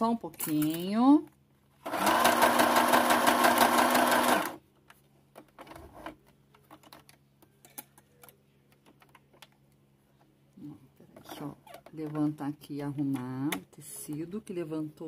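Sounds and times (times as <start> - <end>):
sewing machine stitching: 1.8 - 4.6.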